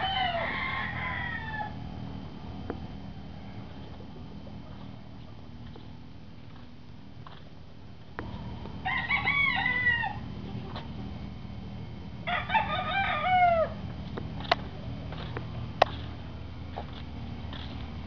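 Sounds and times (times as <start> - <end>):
rooster crowing: 0.0 - 2.0, 8.8 - 10.8, 12.2 - 13.9.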